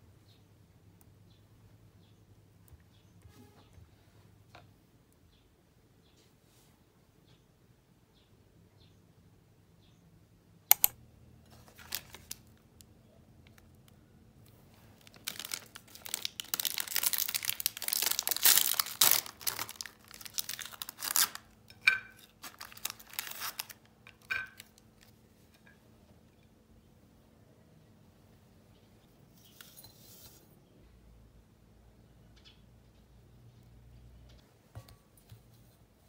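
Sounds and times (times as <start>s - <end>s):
short clicks: 10.7s - 11.0s
plastic wrapper tearing and crinkling: 11.5s - 12.6s, 14.8s - 21.6s, 22.2s - 25.1s.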